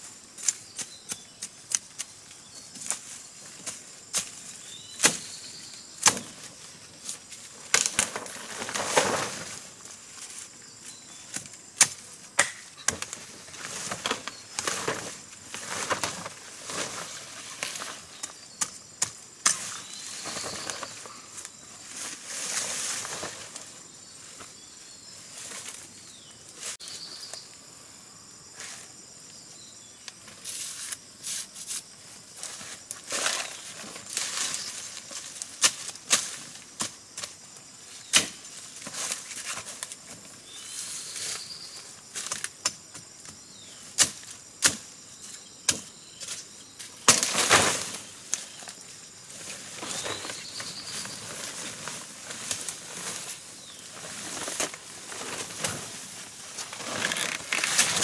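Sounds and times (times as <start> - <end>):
large leaves rustling and swishing: 0.0 - 12.2, 12.8 - 27.4, 30.2 - 45.3, 46.0 - 58.0
stalks snapping and knocking: 11.3 - 13.2.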